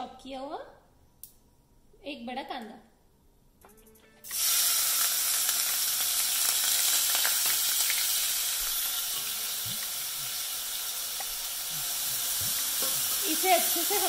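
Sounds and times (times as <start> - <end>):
onion sizzling in hot oil: 4.2 - 14.0.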